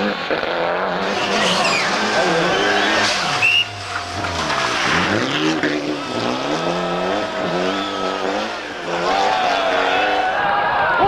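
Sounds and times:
car engine revving: 0.0 - 10.4
tyres squealing: 1.0 - 8.3.

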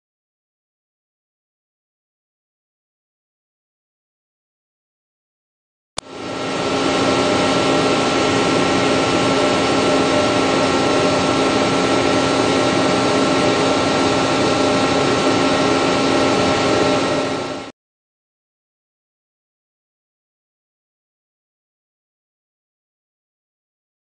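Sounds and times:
steady whining tones: 6.0 - 17.7
testing machine hum and hiss: 6.0 - 17.7.

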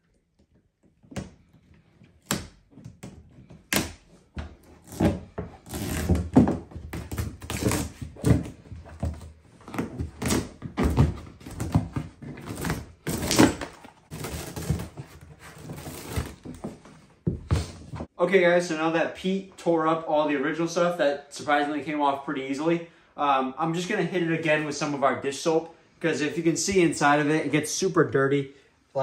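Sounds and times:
foam matting scraping and tearing: 4.8 - 8.5, 11.4 - 16.7.

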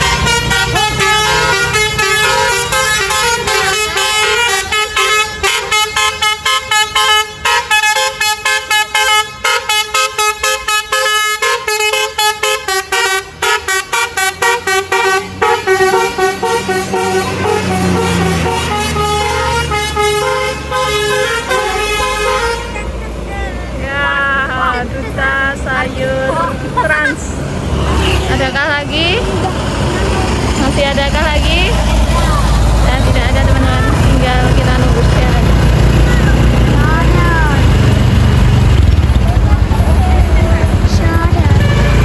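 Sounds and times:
multi-tone bus air horn melody: 0.0 - 23.1, 27.9 - 28.8, 41.2 - 42.0
bus engine pulling away: 0.0 - 42.0.

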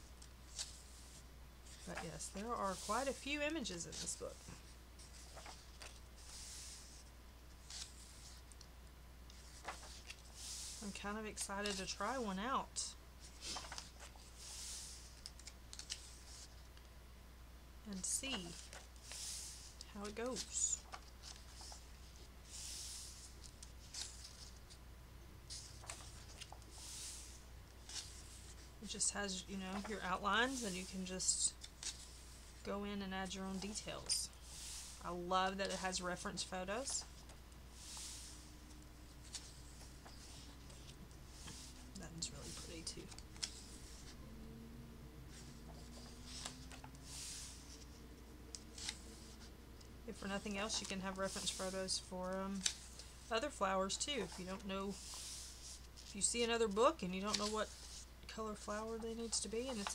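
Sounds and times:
paper pages rustling: 0.0 - 8.7, 9.3 - 16.9, 17.9 - 24.8, 25.4 - 44.2, 45.3 - 59.9
faint low hum: 0.0 - 59.9
paper swish: 13.3 - 16.5, 18.3 - 24.6, 37.8 - 38.5, 45.3 - 48.0.

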